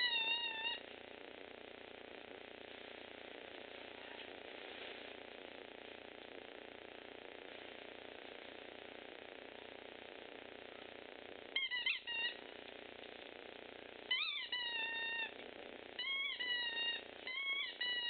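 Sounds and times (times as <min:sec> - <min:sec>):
puppy whining: 0:00.0 - 0:00.8, 0:11.6 - 0:12.5, 0:14.1 - 0:15.4, 0:16.0 - 0:18.0.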